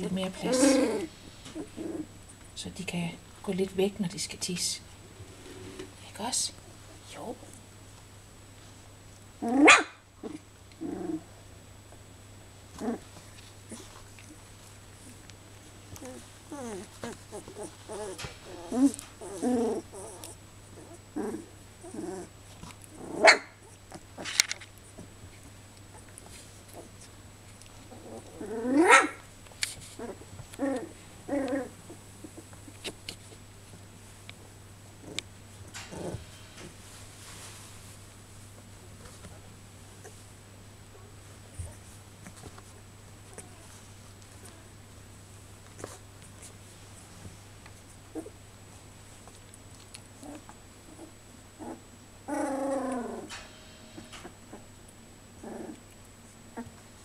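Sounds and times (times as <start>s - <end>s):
puppy barking: 9.6s - 10.0s, 23.2s - 23.5s, 28.8s - 29.2s
puppies yelping: 16.0s - 22.3s, 28.3s - 29.2s.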